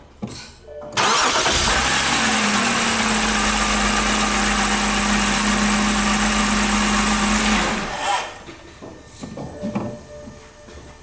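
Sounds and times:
car engine starting and idling: 1.0 - 7.9.

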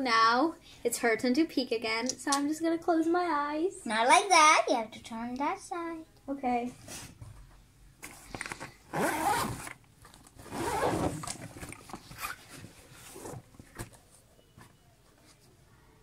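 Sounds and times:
zipper on fabric bag: 8.9 - 9.7, 10.4 - 11.4.

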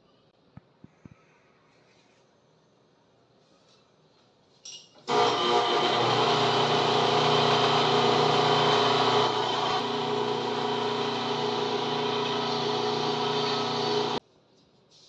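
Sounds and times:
metal lathe running: 5.1 - 14.2.

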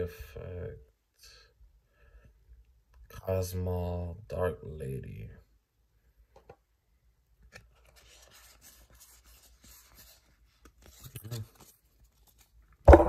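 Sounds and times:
cards being shuffled: 7.4 - 12.8.

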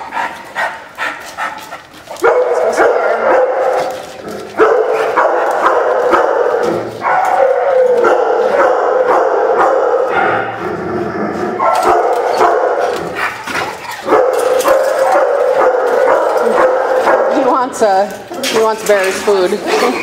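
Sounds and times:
dogs barking and yelping: 0.0 - 20.0.

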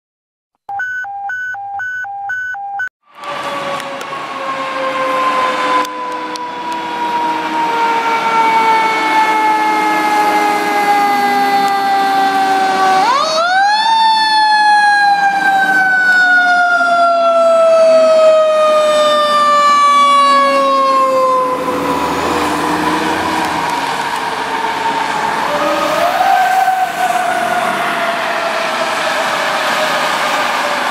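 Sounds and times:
mechanical siren wailing: 3.1 - 30.7.

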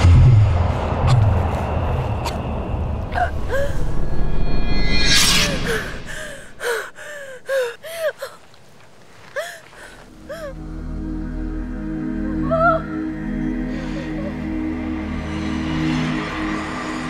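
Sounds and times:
low music drone: 0.0 - 7.6, 10.1 - 17.0
woman gasping: 3.1 - 4.1, 5.5 - 8.5, 9.2 - 10.6
woman whimpering cries: 3.2 - 4.1, 5.7 - 8.5, 9.2 - 10.6, 12.3 - 13.0.

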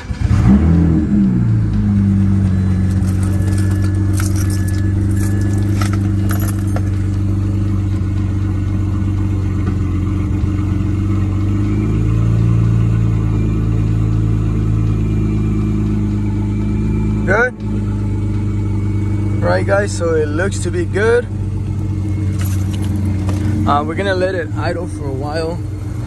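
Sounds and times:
car engine idling: 1.0 - 26.0.

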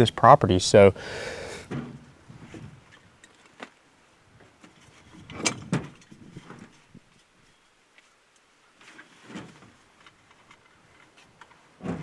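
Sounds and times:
loud clunks: 1.7 - 2.0.

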